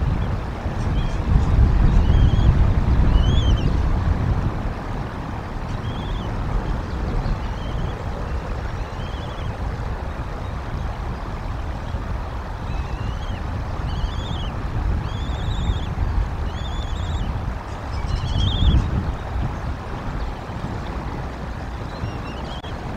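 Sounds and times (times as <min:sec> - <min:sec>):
wind rumbling on microphone: 0:00.0 - 0:22.9
eaglet chirping: 0:12.7 - 0:15.9, 0:16.5 - 0:17.3.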